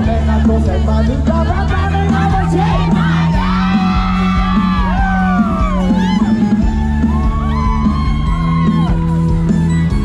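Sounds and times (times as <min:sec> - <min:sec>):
live band music loud: 0:00.0 - 0:10.0.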